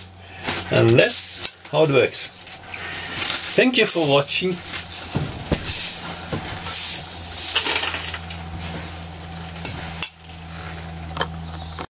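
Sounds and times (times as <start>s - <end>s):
electric fan humming: 0.0s - 11.9s
coffee beans rattling in colander: 3.1s - 8.4s.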